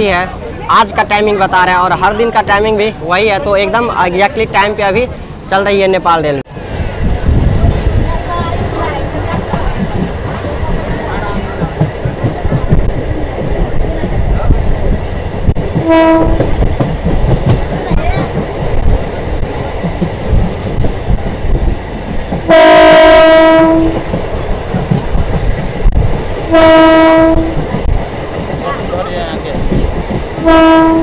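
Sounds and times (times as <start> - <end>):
train running on track: 0.0 - 31.0
train horn blasts: 15.8 - 16.5, 22.5 - 24.0, 26.5 - 27.6, 30.4 - 31.0.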